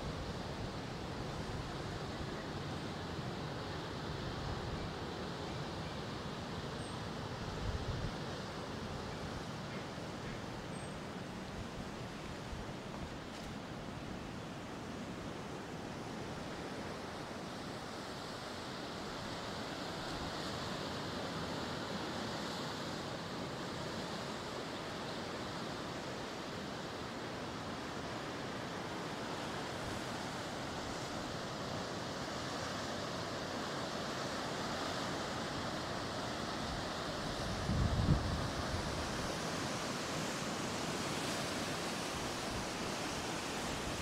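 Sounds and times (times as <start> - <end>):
wind on microphone: 37.4 - 39.2.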